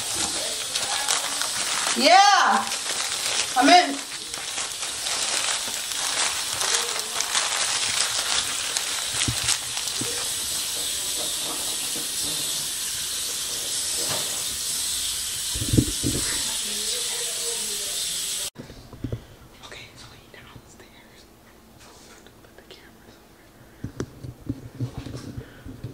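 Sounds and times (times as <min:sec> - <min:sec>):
paper wrapper crinkling: 0:00.0 - 0:13.2
steady hiss: 0:00.0 - 0:18.6.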